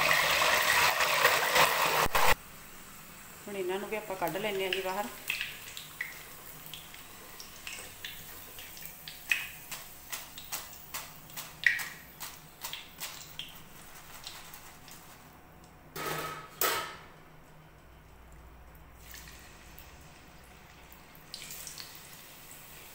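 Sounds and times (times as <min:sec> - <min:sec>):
oil crackling: 0:04.7 - 0:15.4
chips rustling in strainer: 0:09.7 - 0:15.4.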